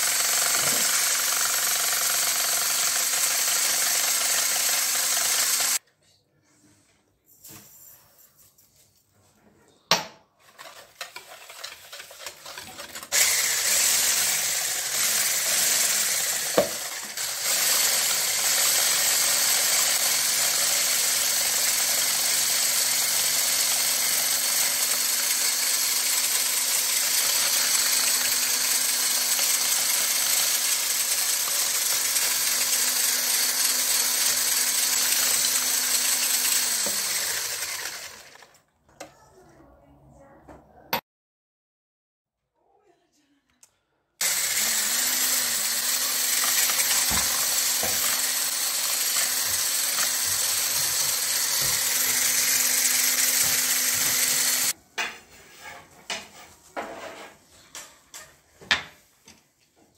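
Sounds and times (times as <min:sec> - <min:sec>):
electric hand blender whirring: 0:00.0 - 0:05.8, 0:10.7 - 0:38.6, 0:44.2 - 0:54.8.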